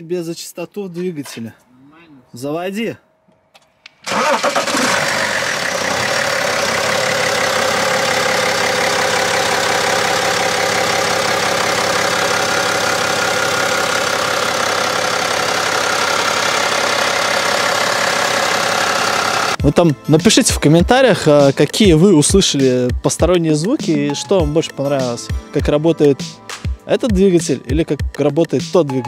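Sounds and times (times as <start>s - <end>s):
diesel engine cranking and idling: 3.9s - 19.6s.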